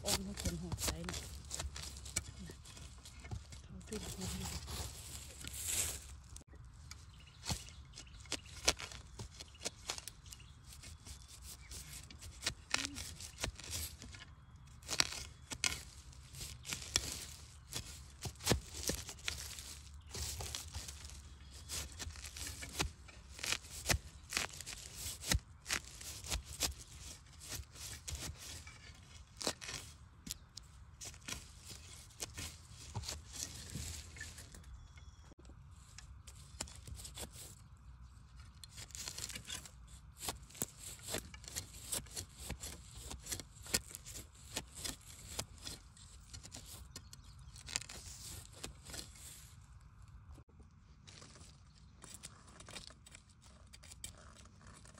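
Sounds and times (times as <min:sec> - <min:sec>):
metal blade digging into earth: 0:00.0 - 0:06.2, 0:14.8 - 0:30.4, 0:38.7 - 0:49.2.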